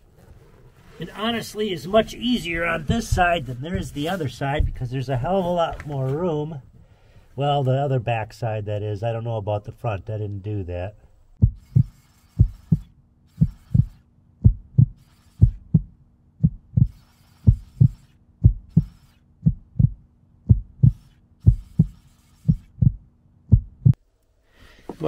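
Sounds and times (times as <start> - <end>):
heartbeat-like low thumps: 2.8 - 5.0, 11.4 - 24.0.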